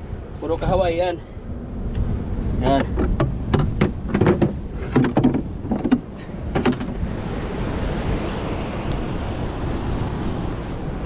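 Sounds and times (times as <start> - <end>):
wind on microphone: 0.0 - 11.0
plastic cooler box knocking on rock: 2.8 - 7.0.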